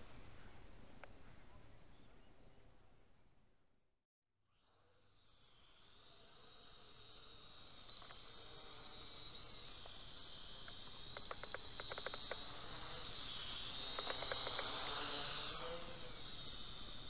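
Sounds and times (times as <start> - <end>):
mini drone motors whining: 4.5 - 17.0
quick clicks: 7.9 - 16.3.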